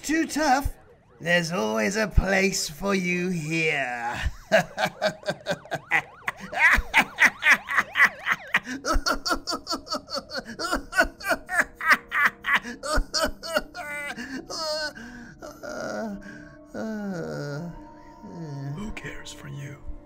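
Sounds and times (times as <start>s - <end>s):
man laughing: 3.5s - 16.2s.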